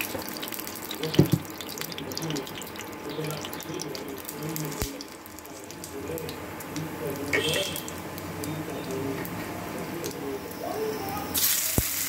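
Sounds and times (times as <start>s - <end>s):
hot oil sizzling and crackling: 0.0s - 12.0s.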